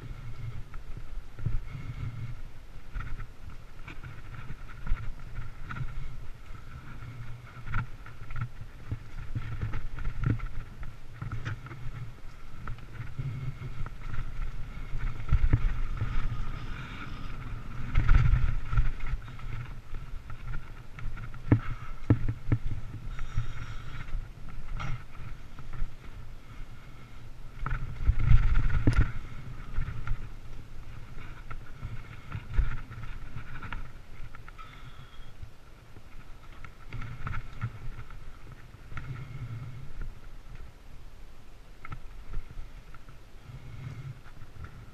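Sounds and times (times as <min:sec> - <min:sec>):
bike tyres rumbling on dirt: 0:00.0 - 0:41.1, 0:41.7 - 0:44.9
wind noise: 0:00.0 - 0:44.9
bike knocks and rattles: 0:03.0 - 0:24.1.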